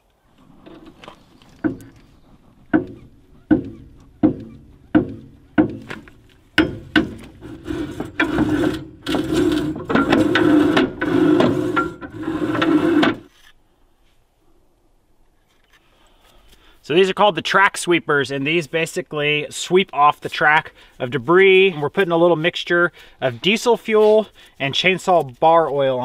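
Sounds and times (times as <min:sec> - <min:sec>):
rough metal scraping: 0:00.3 - 0:13.5
sharp metallic knocks ringing: 0:02.7 - 0:07.4.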